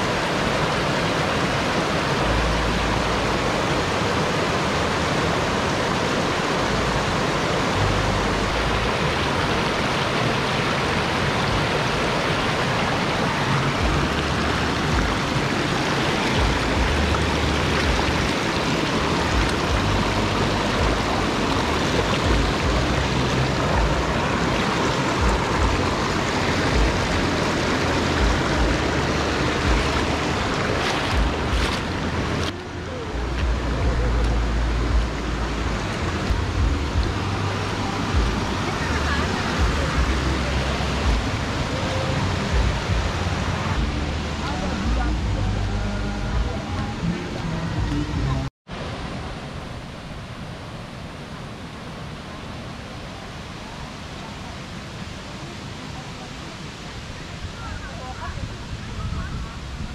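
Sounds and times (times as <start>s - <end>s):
stream rushing over stones: 0.0s - 59.9s
low rumbles: 10.8s - 49.5s.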